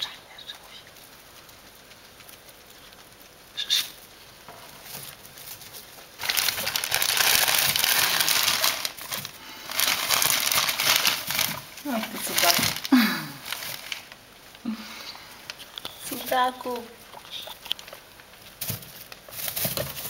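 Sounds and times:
hay rustling and crackling: 4.0s - 14.3s.

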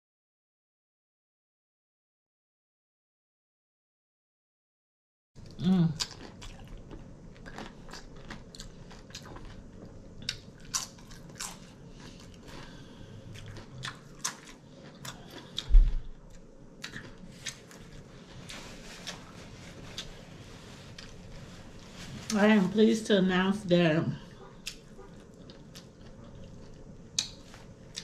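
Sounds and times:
chewing crunchy chips: 5.4s - 21.9s, 24.2s - 28.0s.

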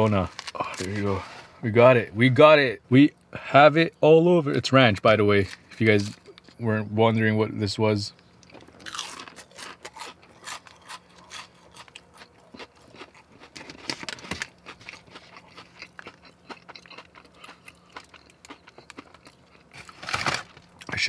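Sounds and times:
chewing fried food: 8.4s - 21.0s.

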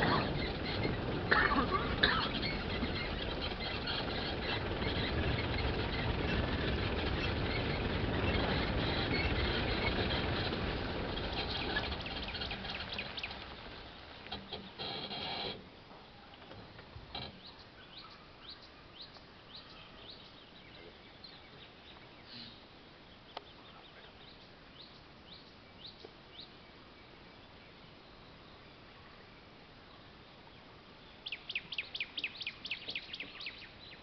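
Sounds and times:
jeep engine and road rumble: 0.0s - 15.6s
birds chirping: 0.0s - 34.0s.

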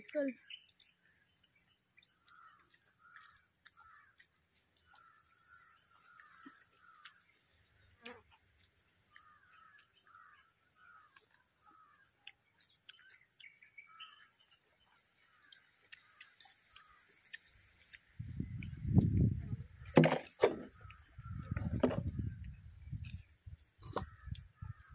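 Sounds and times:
crows cawing: 2.2s - 4.2s, 9.1s - 12.1s
sharp knocks: 19.9s - 20.7s
handling bumps: 19.9s - 20.8s.

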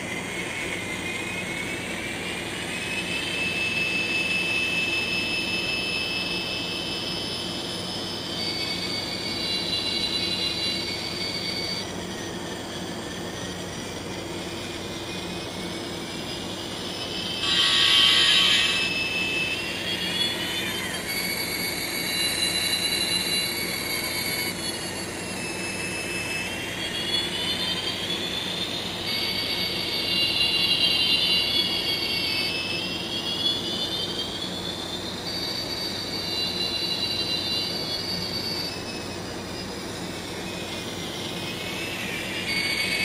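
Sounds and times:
thin whine: 0.0s - 43.0s
horn chord of high tones: 17.4s - 19.2s.

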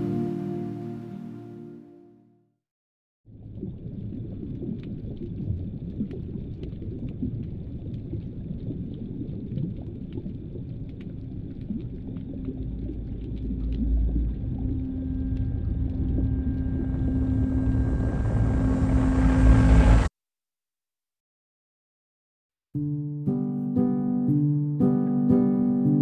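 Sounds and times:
low underwater rumble: 3.3s - 20.1s
faint clicks and crackles: 4.3s - 17.4s
steady low hum: 11.5s - 20.1s.

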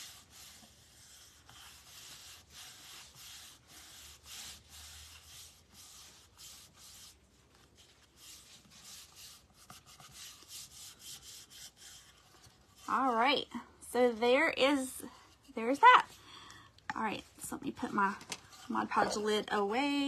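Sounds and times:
hand rubbing paper: 0.0s - 13.2s.

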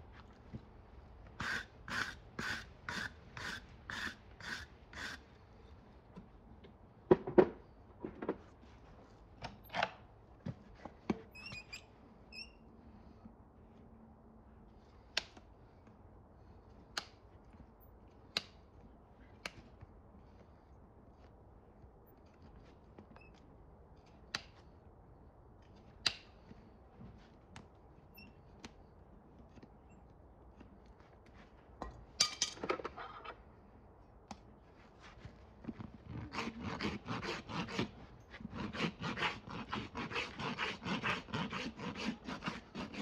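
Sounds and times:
hoof pick scraping: 35.0s - 43.0s.

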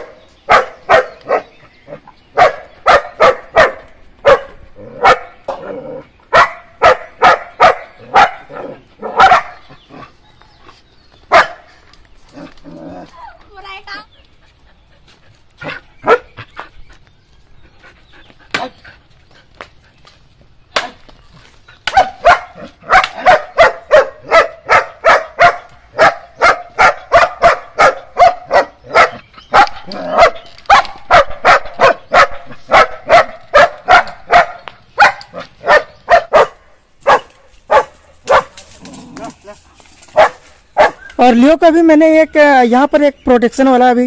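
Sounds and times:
dog barking: 0.0s - 1.5s, 2.3s - 5.4s, 6.3s - 9.7s, 11.3s - 11.7s, 15.6s - 16.4s, 21.9s - 38.6s, 39.4s - 41.1s.

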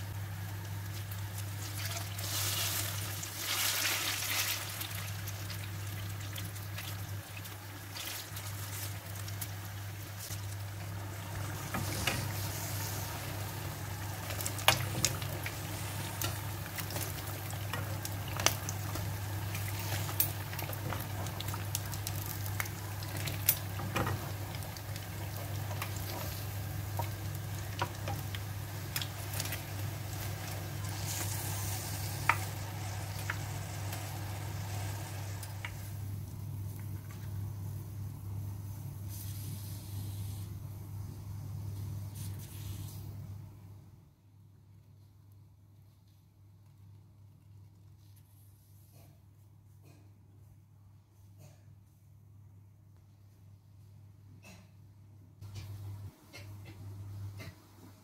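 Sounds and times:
fritters sizzling in oil: 0.0s - 37.0s.

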